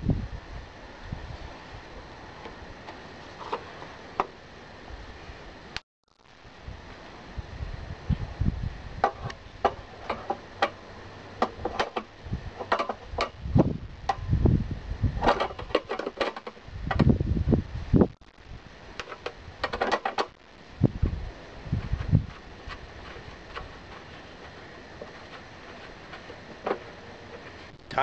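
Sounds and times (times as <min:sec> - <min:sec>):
dull low bumps: 0:13.3 - 0:15.2, 0:20.4 - 0:26.7.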